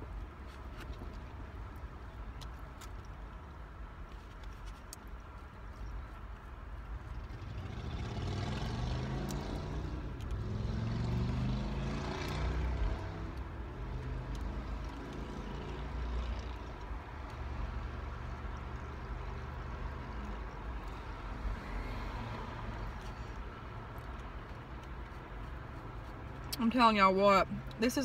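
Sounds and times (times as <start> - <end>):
vehicle engine passing by: 7.2 - 23.4.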